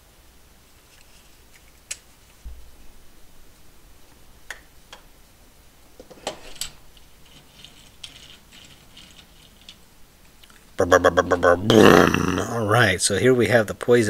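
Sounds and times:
toy car and tools clicking: 0:06.2 - 0:09.8.

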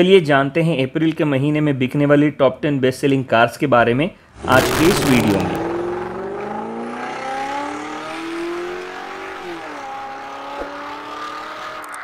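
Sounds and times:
car engine revving: 0:04.3 - 0:12.0.

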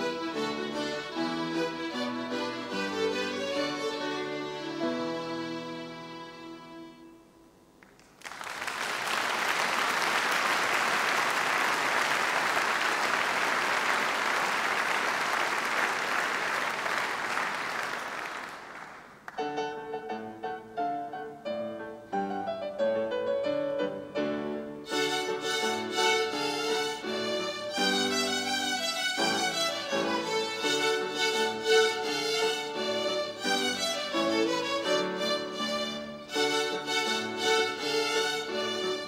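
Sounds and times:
violin ensemble playing: 0:00.0 - 0:07.2, 0:24.6 - 0:39.0
audience applauding: 0:07.8 - 0:19.4.

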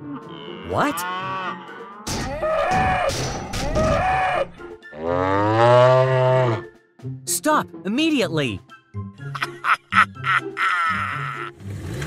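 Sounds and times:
long low animal call: 0:00.0 - 0:02.7.

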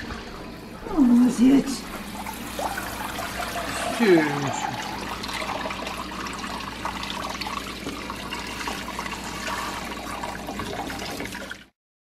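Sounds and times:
water splashing from sink sprayer: 0:02.1 - 0:11.7.

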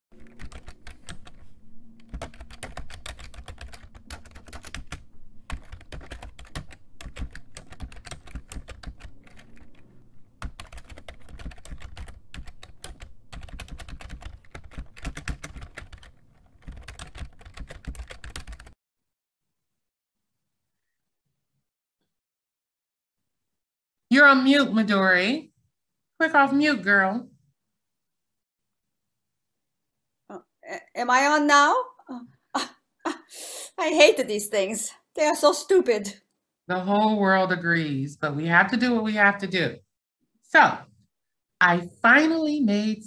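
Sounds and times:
keyboard typing clicks: 0:02.0 - 0:09.8.

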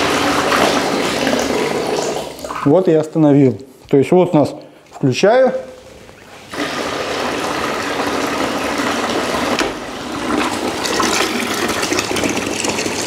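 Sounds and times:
drain pump motor: 0:00.0 - 0:02.9, 0:06.5 - 0:13.0
water rushing into bucket: 0:00.0 - 0:03.1, 0:06.4 - 0:13.0.

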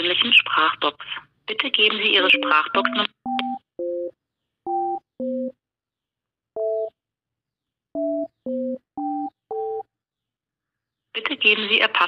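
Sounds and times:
phone keypad touch-tones: 0:02.3 - 0:04.1, 0:08.0 - 0:09.9.

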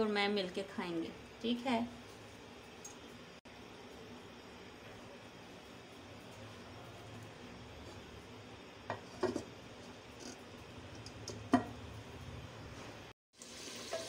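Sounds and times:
clay lid knocking on pot rim: 0:11.5 - 0:11.8.

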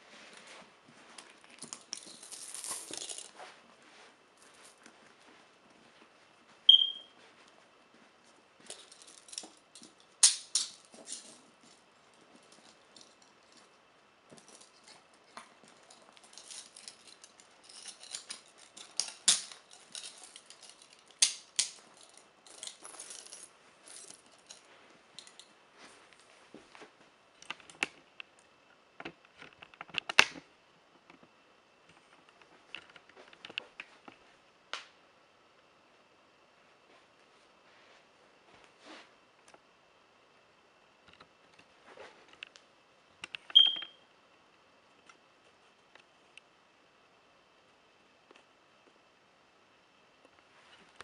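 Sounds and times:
metal chains clinking and rattling: 0:01.6 - 0:03.3, 0:08.7 - 0:11.4, 0:15.6 - 0:25.5.

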